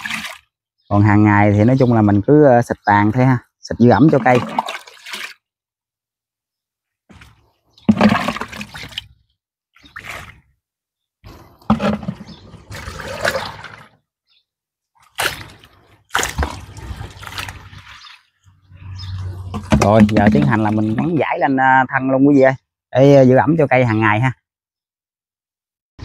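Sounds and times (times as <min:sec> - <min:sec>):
liquid splashing onto soil: 0:04.2 - 0:05.4, 0:07.1 - 0:09.2, 0:15.0 - 0:18.2.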